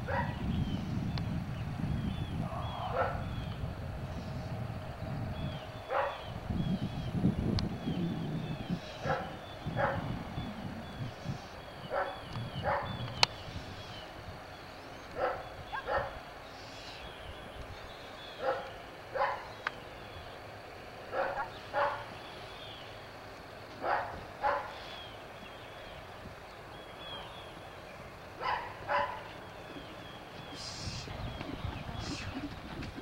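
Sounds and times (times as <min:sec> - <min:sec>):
dog double barking: 0:02.9 - 0:03.3, 0:05.9 - 0:06.2, 0:09.0 - 0:10.1, 0:11.9 - 0:13.0, 0:15.2 - 0:16.2, 0:19.2 - 0:19.5, 0:21.1 - 0:22.1, 0:23.8 - 0:24.8, 0:28.4 - 0:29.3
faint bird chirps: 0:07.8 - 0:18.8.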